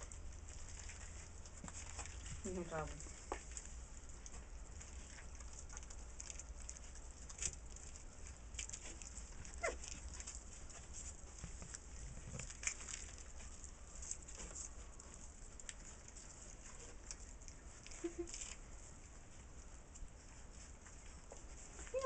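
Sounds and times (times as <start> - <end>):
puppies chewing and lapping: 0.0 - 22.0
puppy whimper: 9.4 - 10.0.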